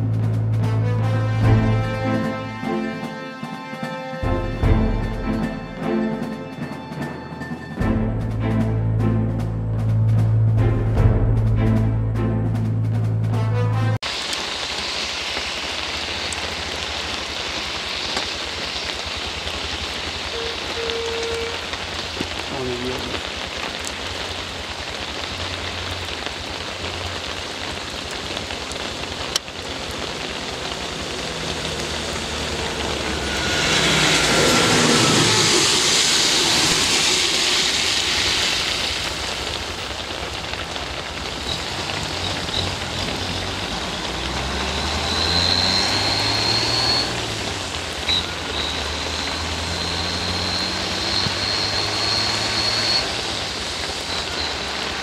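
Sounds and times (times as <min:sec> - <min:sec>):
rain on wet road: 0:00.0 - 0:07.0, 0:14.0 - 0:55.0
tyres hissing through water: 0:14.1 - 0:55.0.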